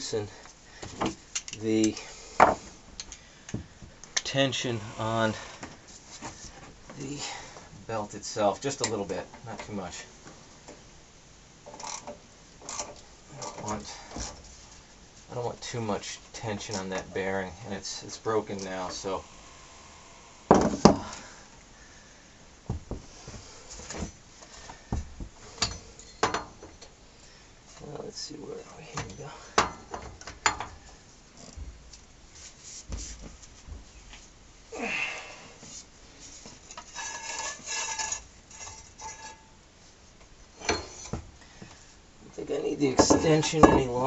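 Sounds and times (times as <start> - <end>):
metal hand tools clanking: 25.5 - 26.8, 40.6 - 41.2, 42.9 - 44.0.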